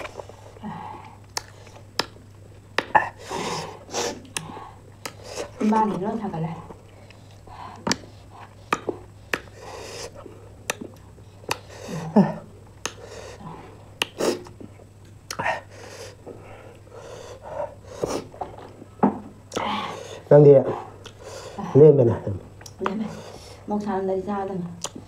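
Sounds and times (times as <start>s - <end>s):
mouth clicks: 1.3s - 2.2s, 10.6s - 11.7s, 12.8s - 13.1s, 14.0s - 15.6s, 24.8s - 25.0s
wet lip smacks: 1.3s - 2.2s, 10.6s - 11.7s.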